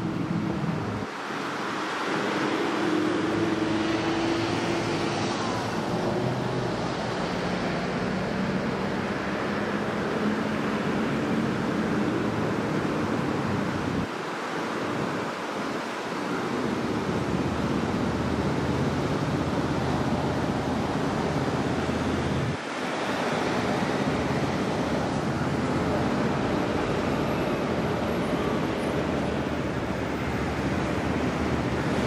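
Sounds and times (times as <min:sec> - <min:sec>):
street traffic: 0:00.0 - 0:32.0.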